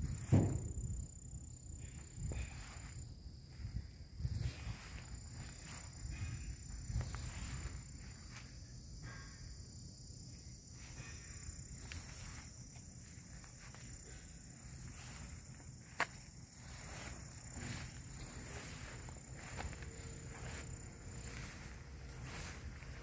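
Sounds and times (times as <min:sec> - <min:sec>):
wind rumble on microphone: 0:00.0 - 0:01.2, 0:01.8 - 0:07.9
high-pitched insect hum: 0:00.0 - 0:23.0.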